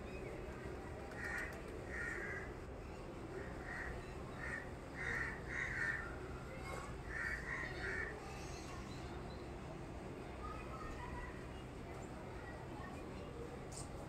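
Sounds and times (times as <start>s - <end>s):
crow cawing: 3.6s - 6.0s, 7.1s - 8.1s.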